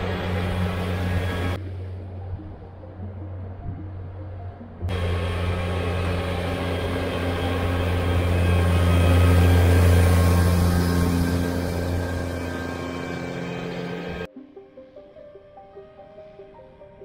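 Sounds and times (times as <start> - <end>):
tractor diesel engine under load: 0.0 - 1.6, 4.9 - 14.3.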